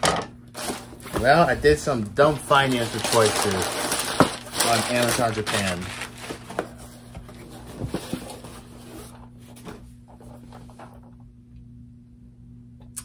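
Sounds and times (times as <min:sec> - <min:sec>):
low electrical hum: 0:00.0 - 0:13.0
packaging rustling and crinkling: 0:00.6 - 0:09.2.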